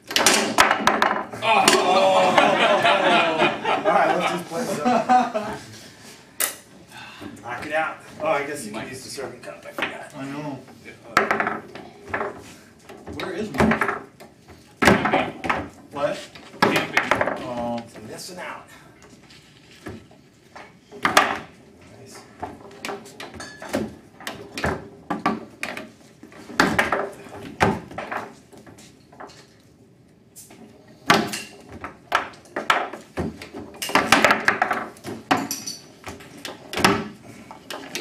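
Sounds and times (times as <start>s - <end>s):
foosball rods slamming and rattling: 0.0s - 2.0s, 11.1s - 18.2s, 19.7s - 29.8s, 30.5s - 38.0s
foosball ball clacking: 0.0s - 2.5s, 11.1s - 15.8s, 16.4s - 17.5s, 19.7s - 21.6s, 22.3s - 29.6s, 31.0s - 38.0s.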